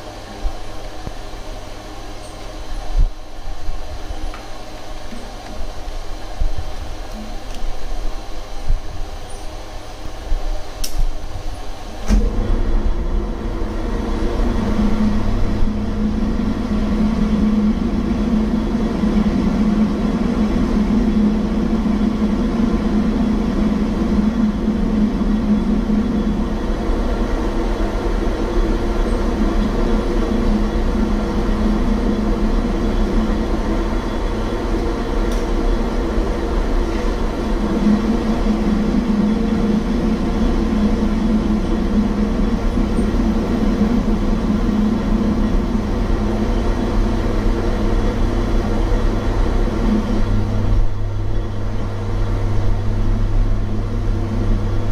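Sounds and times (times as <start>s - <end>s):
lathe machine hum: 0.0s - 54.9s.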